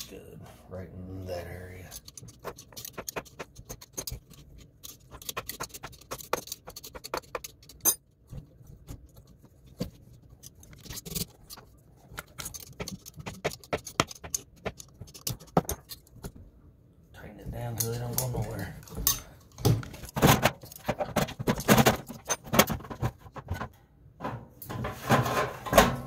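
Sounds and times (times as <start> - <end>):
metal clicks and rattles: 1.9 - 8.0, 10.4 - 16.1, 17.8 - 23.7.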